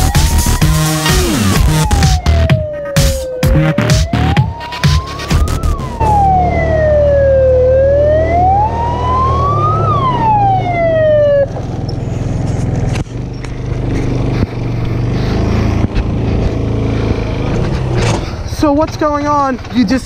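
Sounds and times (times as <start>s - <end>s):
electronic wail siren: 0.0s - 11.5s
quad bike engine running: 3.8s - 20.0s.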